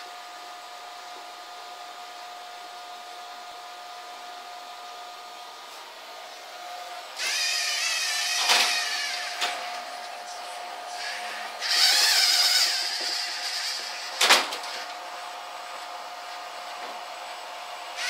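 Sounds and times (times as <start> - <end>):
high wavering motor whine: 1.6 - 18.0
small electric motors whining: 5.7 - 18.0.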